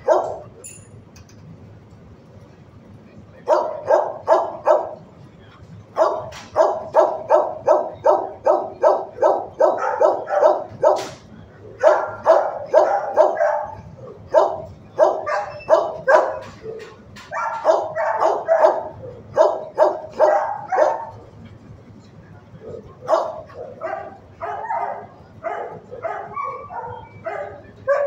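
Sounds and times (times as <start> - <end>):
dog barking: 0.0 - 0.5, 3.4 - 5.0, 6.0 - 21.2, 23.0 - 28.0.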